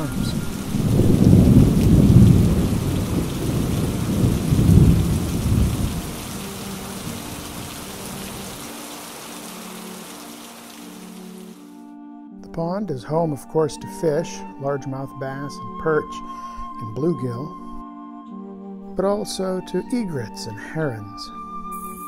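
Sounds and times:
thunder rumbling: 0.0s - 8.8s
heavy rain pouring: 0.0s - 11.6s.

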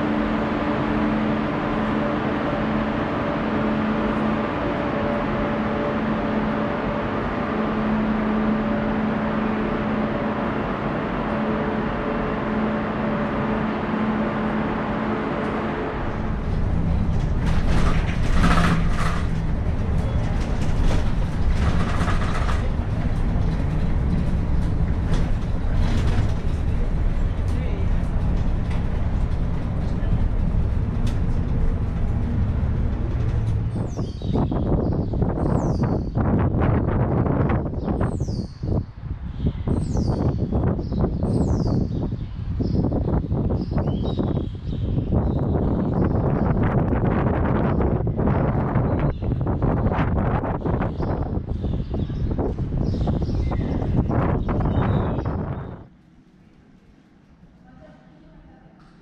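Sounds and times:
low hum: 0.0s - 38.1s
machinery rumble: 0.0s - 59.0s
indistinct voices: 1.4s - 34.8s.

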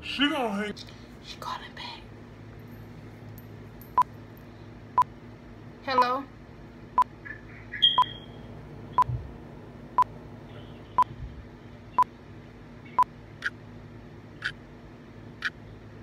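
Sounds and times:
phone beeps: 7.8s - 8.3s.

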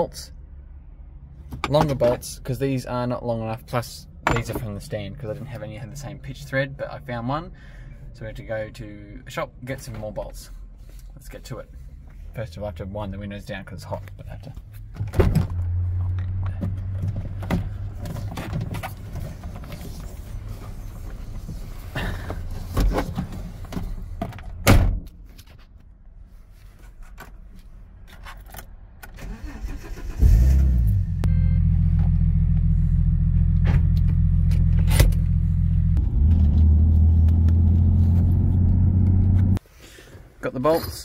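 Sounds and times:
clicks and knocks: 4.3s - 4.7s
car engine starting and running: 29.0s - 39.6s
low hum: 30.3s - 39.6s.

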